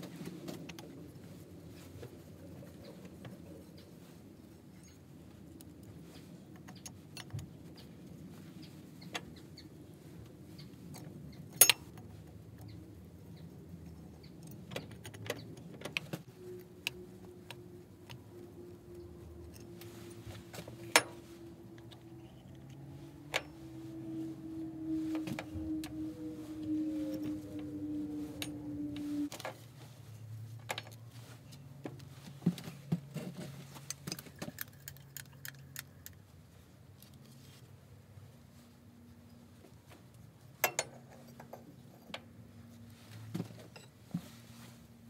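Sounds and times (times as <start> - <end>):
faint steady tone: 16.3 - 29.3.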